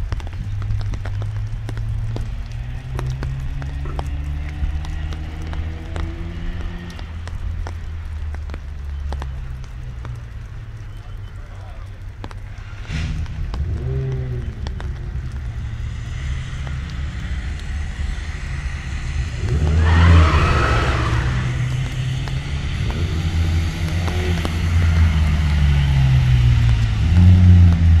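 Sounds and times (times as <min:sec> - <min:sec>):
car engine running hard: 0:12.2 - 0:28.0.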